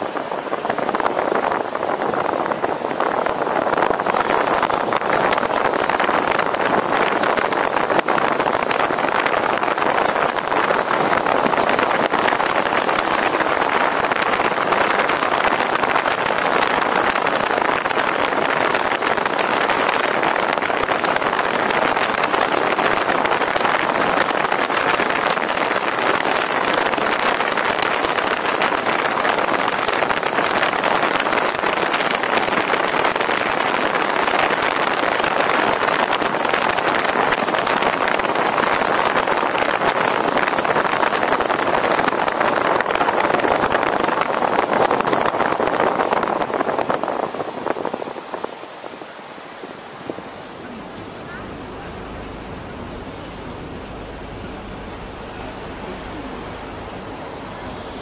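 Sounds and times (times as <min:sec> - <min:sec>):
wind and road noise: 0:00.0 - 0:58.0
faint thin high tone: 0:20.2 - 0:21.8.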